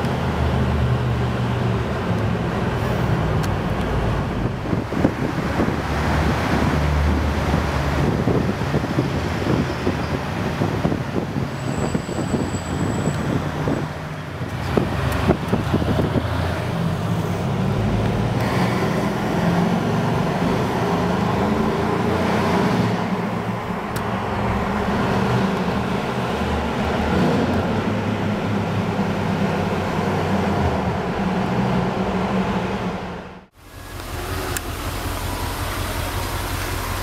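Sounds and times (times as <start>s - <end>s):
engine running in a tunnel: 15.1s - 37.0s.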